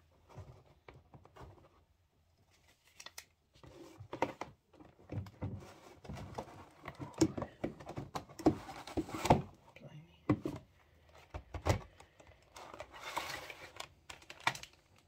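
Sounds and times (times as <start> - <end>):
cardboard box scrapes and rustles: 12.9 - 13.7.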